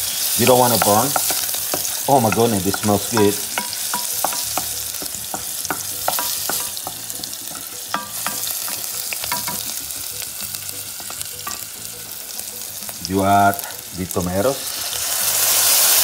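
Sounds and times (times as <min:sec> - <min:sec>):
vegetables sizzling in hot oil: 0:00.0 - 0:16.0
wooden spoon clicking against pot: 0:00.7 - 0:10.2.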